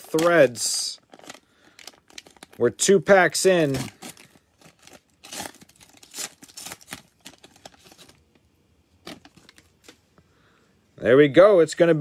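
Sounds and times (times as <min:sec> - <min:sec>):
cellophane wrapper tearing and crinkling: 0:00.0 - 0:08.4, 0:09.0 - 0:10.0.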